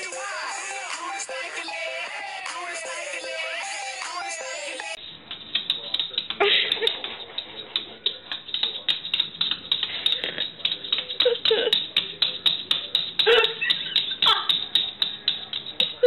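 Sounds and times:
dog claws clicking on wooden floor: 5.2 - 16.0.

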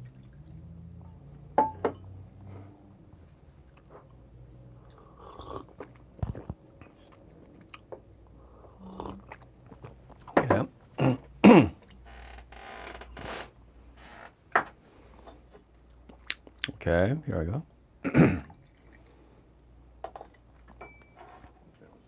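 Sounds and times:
sips and mouth noises: 4.8 - 10.3
coffee slurping: 4.9 - 6.6.

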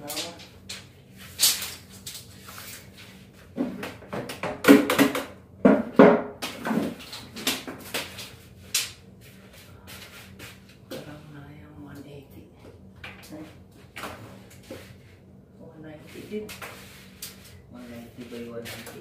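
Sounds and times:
tape measure clicks and rattles: 0.0 - 2.8.

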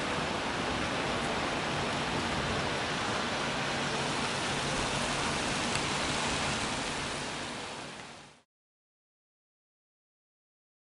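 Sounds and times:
heavy rain pouring: 0.0 - 8.4.

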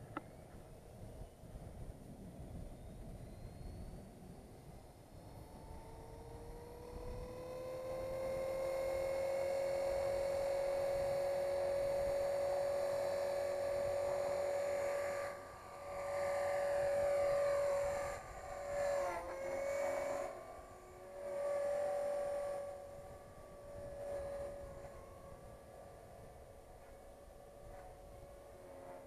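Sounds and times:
rc helicopter motor whining: 0.0 - 29.0.

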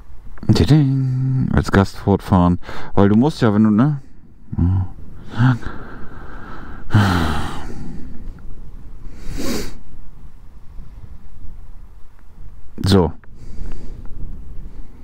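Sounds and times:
man sighing and exhaling: 4.4 - 8.3
man murmuring: 4.5 - 5.8.

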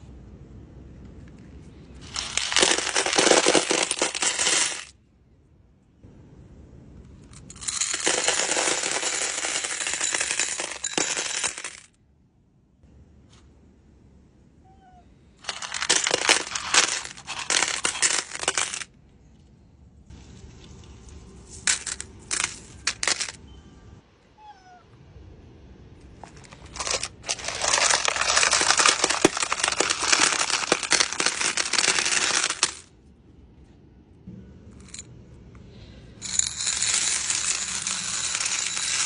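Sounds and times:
stones clattering into a bin: 2.1 - 4.9, 15.4 - 18.9, 21.5 - 23.4, 26.3 - 32.8.

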